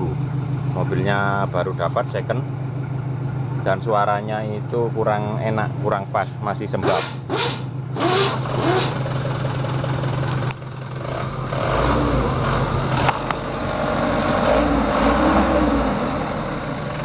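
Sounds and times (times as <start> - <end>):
diesel engine revving: 6.6 - 17.0.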